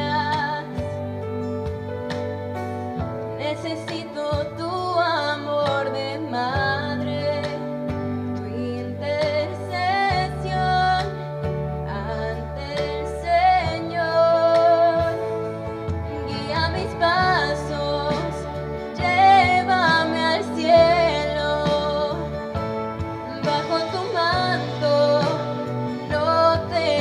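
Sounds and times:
woman singing into microphone: 0.0 - 2.2, 3.2 - 27.0
instrumental backing with bass: 0.0 - 27.0.

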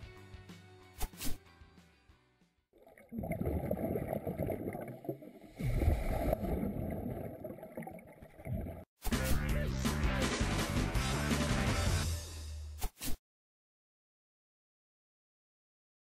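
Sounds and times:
music: 0.0 - 2.7, 9.1 - 12.8
bubbles gurgling underwater: 2.8 - 8.9.

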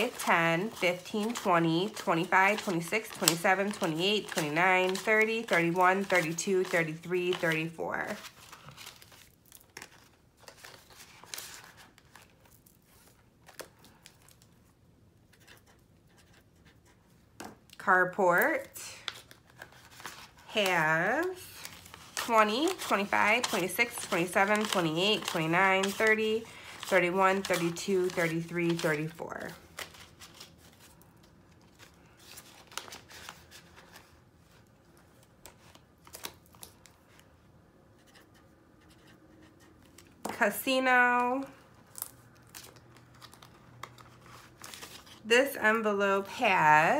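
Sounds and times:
paper bills rustling: 0.0 - 14.4, 18.4 - 37.3, 38.0 - 45.5
binder page turning: 0.0 - 14.5, 19.0 - 37.2, 41.2 - 45.2
plastic pouch crinkling: 19.0 - 33.9, 41.8 - 45.3.

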